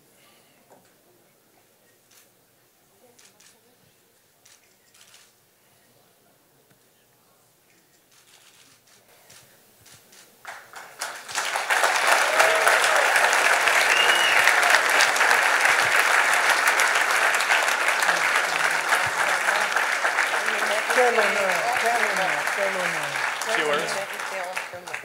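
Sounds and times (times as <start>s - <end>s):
audience applause: 10.4s - 25.0s.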